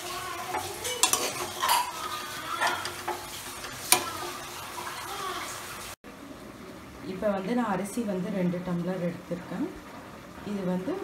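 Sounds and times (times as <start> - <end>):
food sizzling while frying: 0.0 - 6.0
metal ladle scraping a pan: 0.4 - 5.1
ladle clinking against pot: 0.6 - 2.0.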